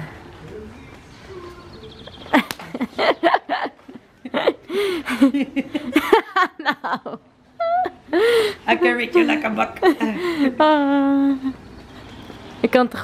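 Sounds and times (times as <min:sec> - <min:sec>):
woman laughing hard: 0:02.3 - 0:08.4.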